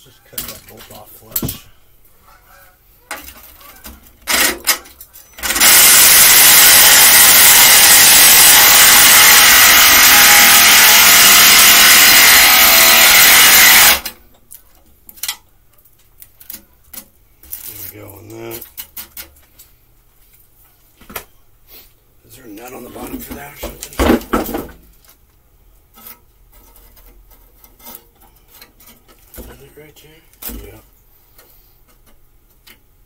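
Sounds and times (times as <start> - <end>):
cut-off wheel grinding metal: 5.4 - 14.2.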